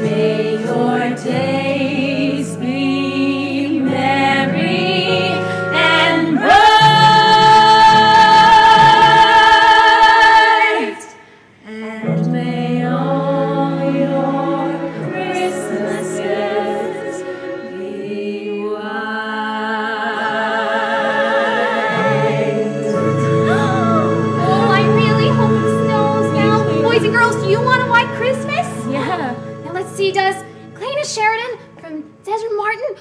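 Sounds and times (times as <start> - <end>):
backing music: 0.0 - 10.6, 12.5 - 33.0
person singing: 21.9 - 29.7.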